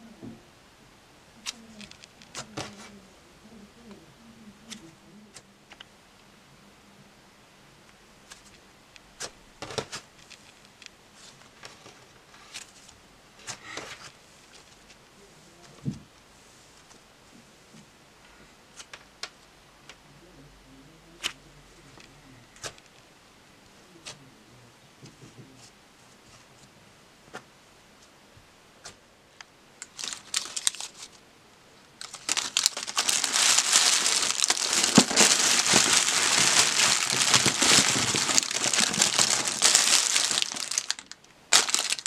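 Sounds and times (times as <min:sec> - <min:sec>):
plastic wrappers crinkling: 0:01.4 - 0:03.0, 0:29.8 - 0:31.2, 0:32.0 - 0:42.0.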